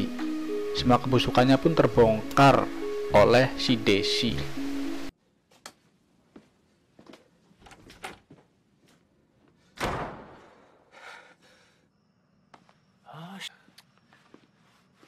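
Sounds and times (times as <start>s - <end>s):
door slamming shut: 9.8s - 10.6s.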